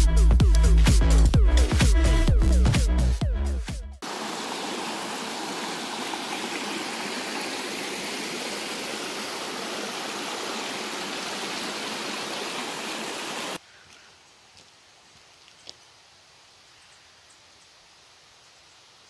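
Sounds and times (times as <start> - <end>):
creek water rushing over rocks: 4.0 - 13.6.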